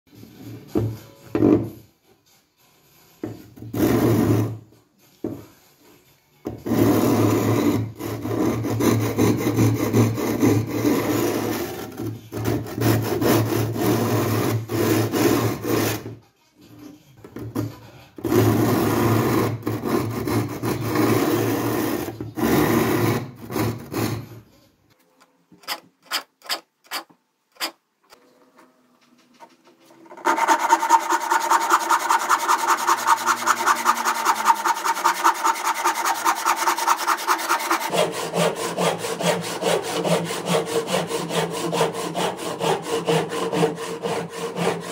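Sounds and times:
hand saw cutting wood: 3.7s - 4.6s, 6.6s - 16.2s, 17.6s - 24.4s, 30.0s - 44.9s
block rasping on saw teeth: 30.0s - 44.9s.

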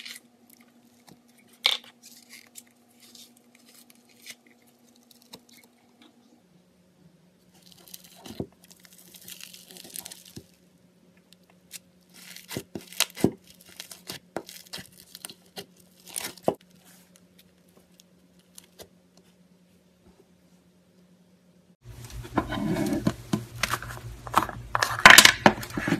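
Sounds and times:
slime crackling and tearing: 7.5s - 10.6s, 11.7s - 16.7s.

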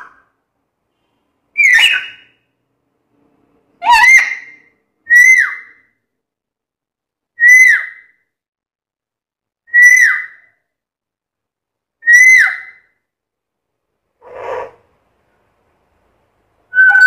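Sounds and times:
parrot whistled call: 1.6s - 2.4s, 3.8s - 5.8s, 7.4s - 8.1s, 9.7s - 10.5s, 12.0s - 12.8s, 16.7s - 17.0s.

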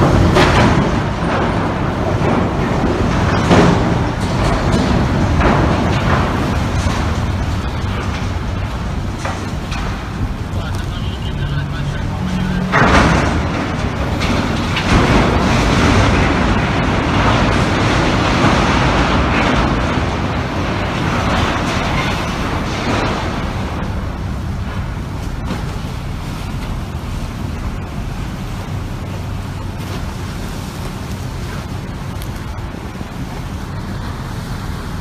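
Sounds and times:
ferry grinding against steel crane: 0.0s - 35.0s.

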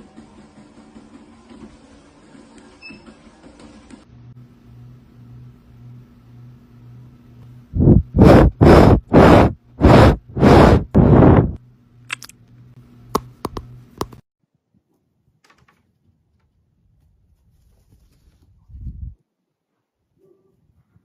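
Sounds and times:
cat blowing rough puffs: 7.8s - 11.6s.

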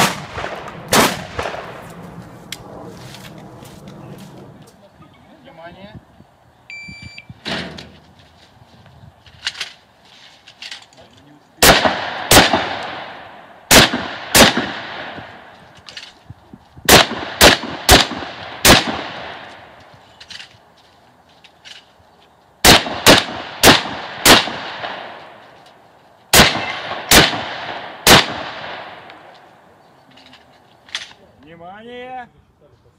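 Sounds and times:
shotgun shots echoing: 0.0s - 1.8s, 11.6s - 15.5s, 16.9s - 19.7s, 22.6s - 25.4s, 26.3s - 29.3s.

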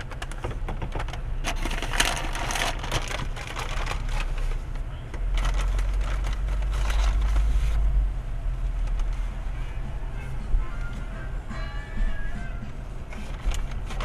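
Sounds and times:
car engine and road rumble: 0.0s - 14.0s
paper bag crinkling: 1.4s - 7.9s, 13.1s - 14.0s.

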